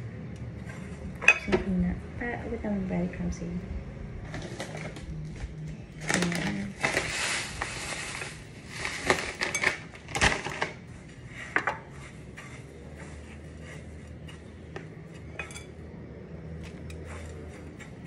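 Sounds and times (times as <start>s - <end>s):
utensils and dishware clattering: 1.2s - 1.6s, 9.1s - 10.7s, 15.2s - 15.8s.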